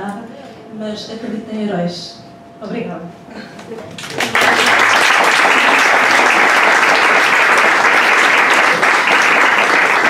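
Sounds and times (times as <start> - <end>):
audience applauding: 4.0 - 10.0.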